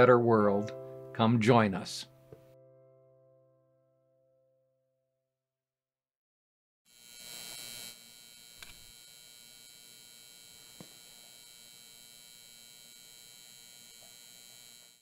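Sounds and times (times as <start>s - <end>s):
neon sign electrical buzz: 6.9s - 15.0s
small clicks: 8.6s - 9.0s.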